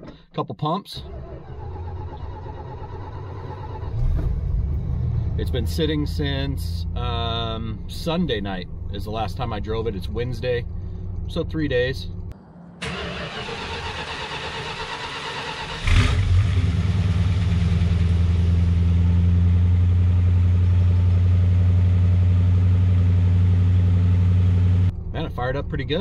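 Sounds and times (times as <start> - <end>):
car engine starting and idling: 0.9 - 26.0
starter motor cranking: 1.0 - 4.4, 12.8 - 16.4.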